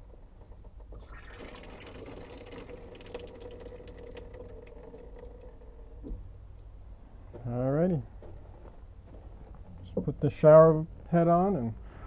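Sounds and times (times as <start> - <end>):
water hissing through pipe: 0.9 - 6.3.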